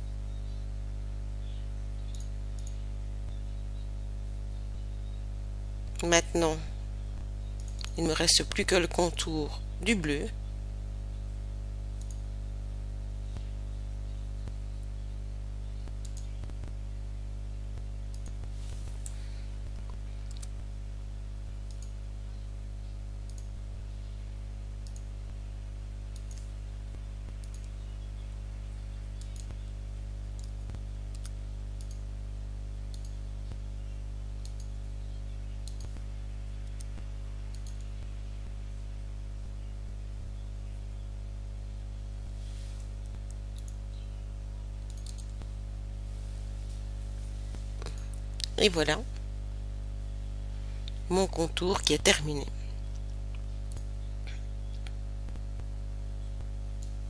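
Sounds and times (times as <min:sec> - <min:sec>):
low electrical hum: 0:00.0 - 0:57.0
computer mouse clicking: 0:02.0 - 0:03.4, 0:07.5 - 0:08.0, 0:12.0 - 0:12.2, 0:15.8 - 0:16.7, 0:18.1 - 0:20.6, 0:21.7 - 0:22.0, 0:23.3 - 0:23.6, 0:24.8 - 0:25.1, 0:26.1 - 0:26.5, 0:27.3 - 0:27.8, 0:29.2 - 0:29.6, 0:30.4 - 0:32.0, 0:32.9 - 0:33.2, 0:34.4 - 0:34.8, 0:35.6 - 0:36.0, 0:36.6 - 0:37.9, 0:42.8 - 0:44.0, 0:44.9 - 0:45.5.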